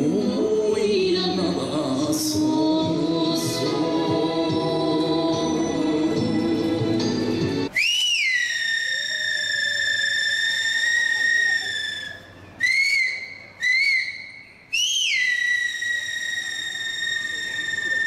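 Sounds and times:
finger whistle: 7.7 - 18.0.

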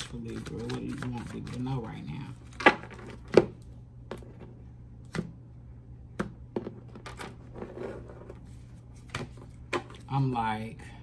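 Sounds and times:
cards being shuffled: 0.0 - 3.4.

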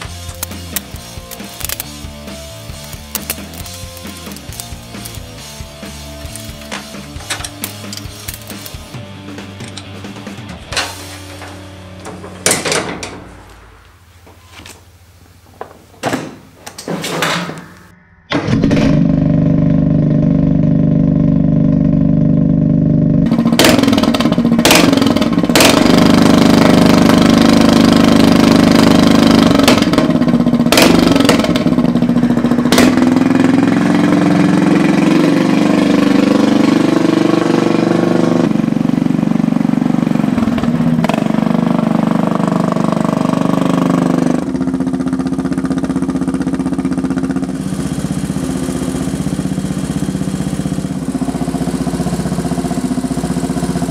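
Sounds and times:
sharp exhaust cracks: 0.0 - 9.0
lawn tractor engine revving: 0.0 - 12.1, 18.4 - 53.9.

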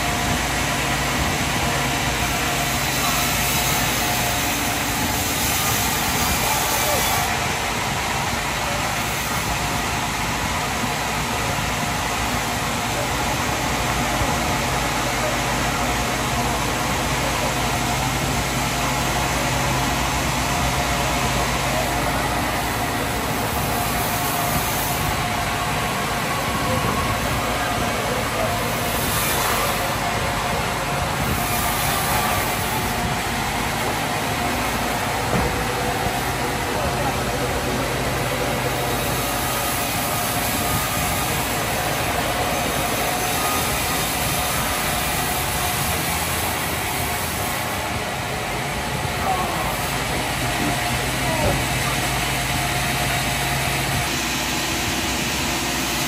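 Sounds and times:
sawmill machinery drone: 0.0 - 56.0.

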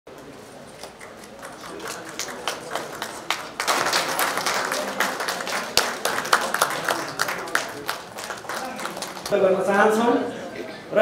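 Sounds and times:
audience applauding: 1.0 - 9.8.

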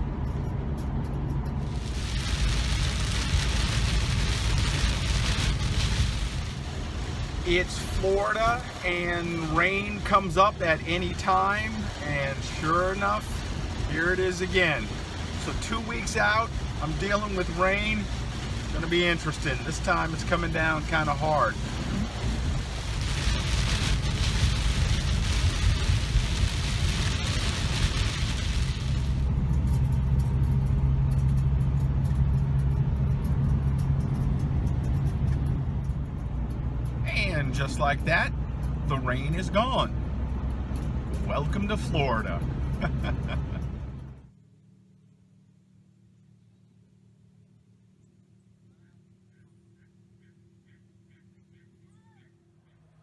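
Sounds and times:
vehicle rumble on road: 0.0 - 53.0
heavy rain on windshield: 1.6 - 32.0.

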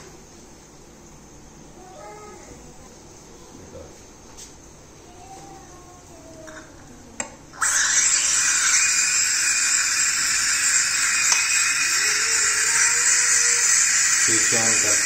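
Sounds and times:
steam hissing: 7.6 - 15.0.

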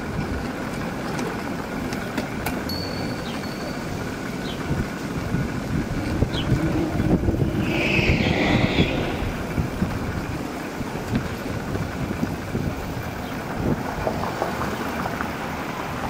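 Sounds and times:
traffic rumble: 0.0 - 16.0
wind buffeting microphone: 1.6 - 16.0
brief hissing: 7.4 - 9.5.

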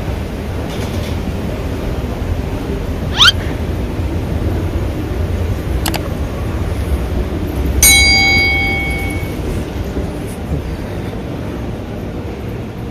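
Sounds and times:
notification bell ding: 7.8 - 9.4.

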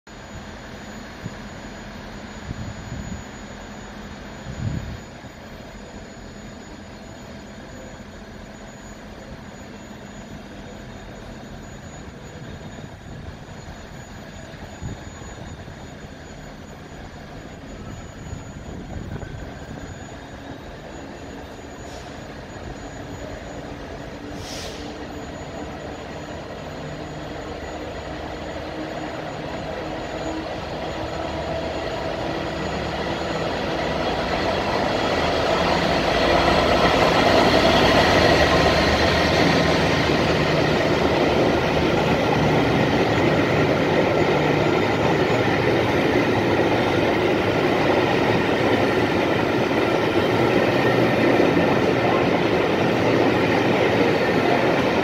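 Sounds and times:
diesel locomotive engine drone: 0.1 - 55.0
brief hiss: 21.8 - 22.3, 24.3 - 25.1.

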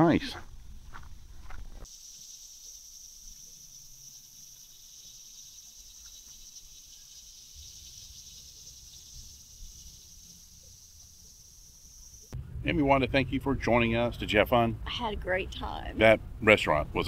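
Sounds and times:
insects buzzing: 0.0 - 12.4
faint low rumble: 12.3 - 17.0.

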